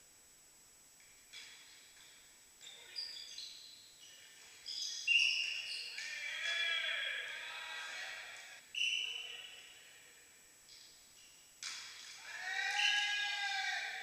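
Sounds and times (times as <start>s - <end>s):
shoes squeaking on court: 1.3s - 6.2s
players shouting: 5.9s - 8.6s, 12.2s - 14.0s
volleyball hits: 11.6s - 13.9s.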